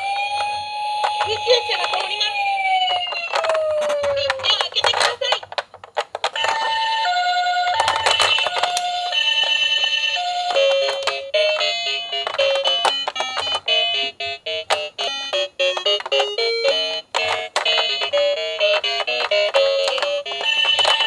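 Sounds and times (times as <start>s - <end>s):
toy electronic tune: 0.0s - 5.1s, 6.3s - 21.0s
toy electronic two-tone siren: 0.0s - 5.1s, 6.4s - 21.0s.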